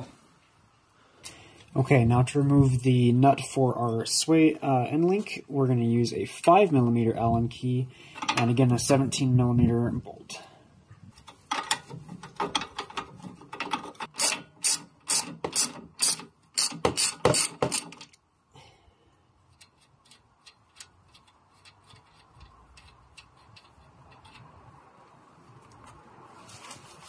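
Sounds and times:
ratcheting wrench clicking: 11.5 - 18.2, 19.5 - 24.6.

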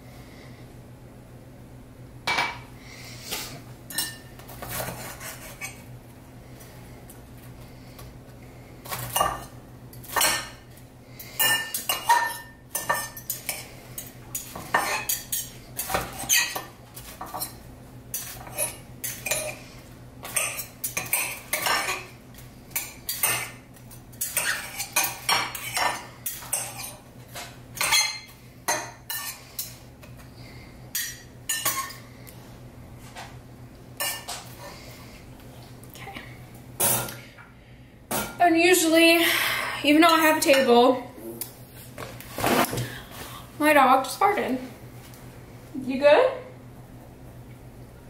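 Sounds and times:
steady low hum: 0.0 - 48.0
cutlery and plates clinking: 8.9 - 10.6, 11.4 - 19.6, 20.2 - 29.8, 31.0 - 32.0.

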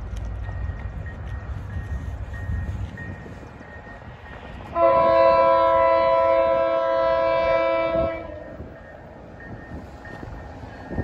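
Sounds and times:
locomotive air horn chord: 4.7 - 8.6.

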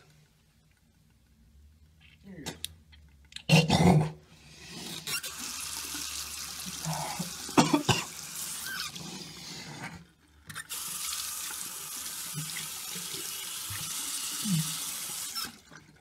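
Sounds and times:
faucet running into sink: 5.0 - 9.2, 10.5 - 16.0.

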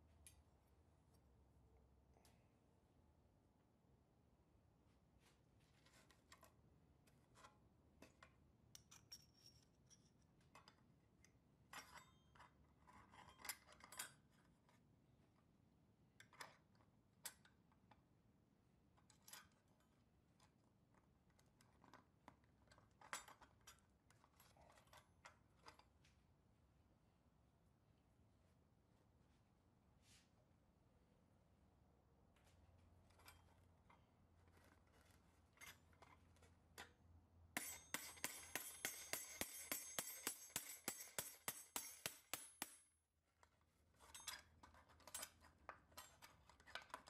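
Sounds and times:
small metal parts clicking and clinking: 8.1 - 14.4, 37.6 - 42.9, 44.0 - 47.0.

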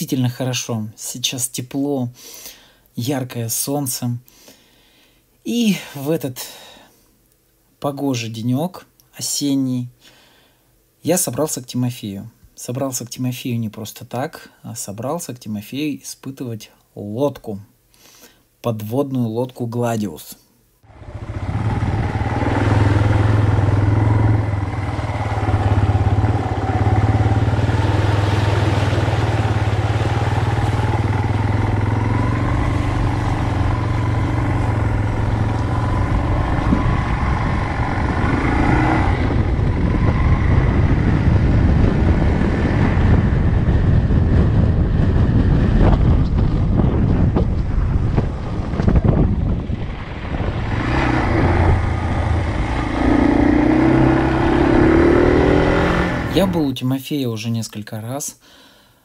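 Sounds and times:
motorcycle engine running: 20.9 - 56.5.

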